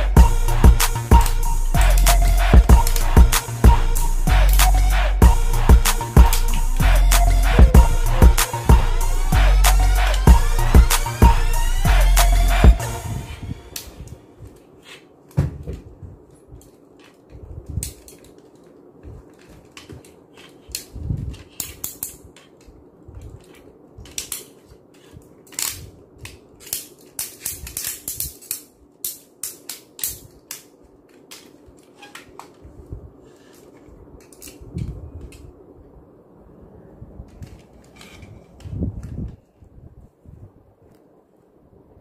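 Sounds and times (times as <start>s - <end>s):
plastic toy parts clicking: 16.3s - 32.7s, 33.4s - 35.5s.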